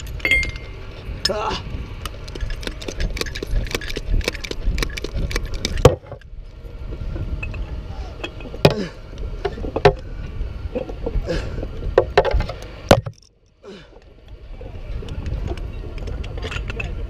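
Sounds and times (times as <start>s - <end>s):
metal clanks: 0.0s - 0.8s
chain hoist clicking and rattling: 0.0s - 1.4s, 2.1s - 6.2s.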